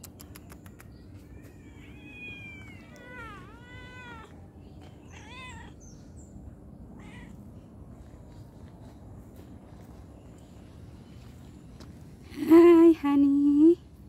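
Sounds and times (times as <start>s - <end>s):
cat meowing: 1.4s - 4.4s, 5.0s - 5.9s, 7.0s - 7.4s.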